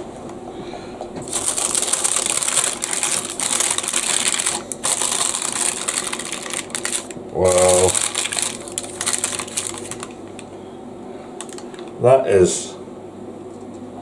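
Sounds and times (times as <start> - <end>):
parchment paper crinkling: 1.2 - 10.4.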